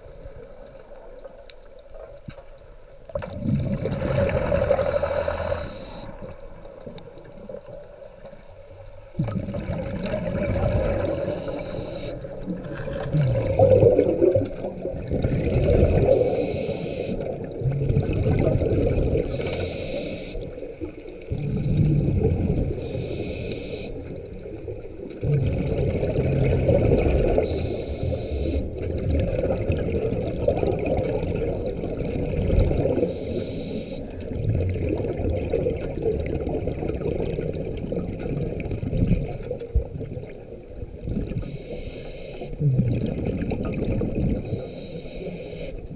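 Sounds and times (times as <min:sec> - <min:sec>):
bubbling exhaled air: 0:03.2 - 0:06.4, 0:09.2 - 0:20.6, 0:21.3 - 0:40.3, 0:41.0 - 0:45.9
regulator hiss on inhalation: 0:04.7 - 0:06.2, 0:11.1 - 0:12.2, 0:16.1 - 0:17.3, 0:19.3 - 0:20.5, 0:22.8 - 0:24.0, 0:27.4 - 0:28.7, 0:33.0 - 0:34.2, 0:41.4 - 0:42.6, 0:44.4 - 0:45.9.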